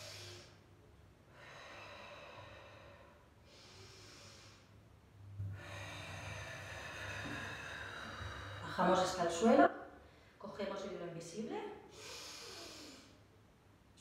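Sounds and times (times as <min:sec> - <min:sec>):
woman breathing deeply: 0:00.0 - 0:09.0, 0:11.9 - 0:13.4.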